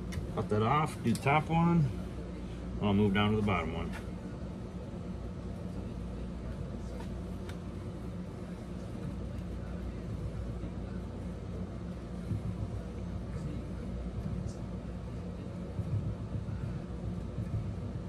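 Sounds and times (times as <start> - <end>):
shop background hum: 0.0 - 18.0.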